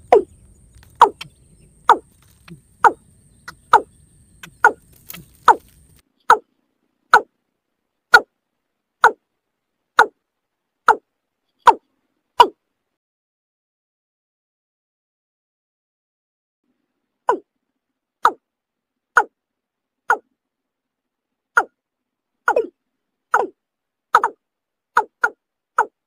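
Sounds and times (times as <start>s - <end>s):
bird calling falling notes: 0.0s - 6.5s.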